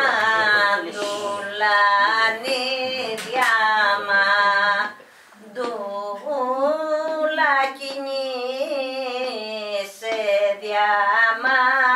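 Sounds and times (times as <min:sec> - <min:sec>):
woman singing folk song: 0:00.0 - 0:11.9.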